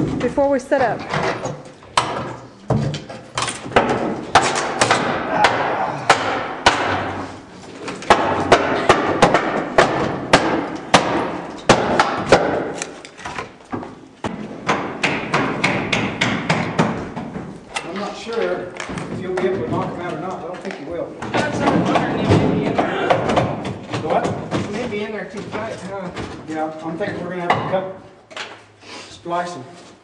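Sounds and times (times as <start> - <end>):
wooden boards knocking: 1.9 - 7.3, 7.9 - 17.6, 21.2 - 26.4.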